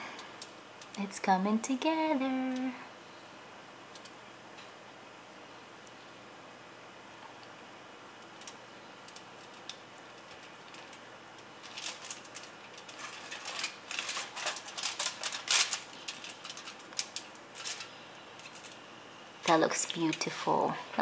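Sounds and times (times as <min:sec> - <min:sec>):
aluminium foil crinkling: 0:08.2 - 0:20.5.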